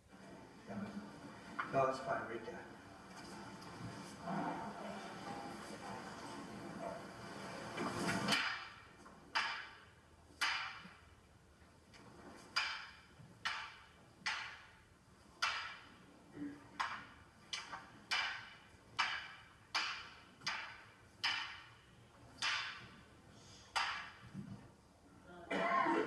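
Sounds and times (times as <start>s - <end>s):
wooden weapons clacking: 7.8s - 11.2s, 11.9s - 16.0s, 16.6s - 23.0s, 23.7s - 24.7s.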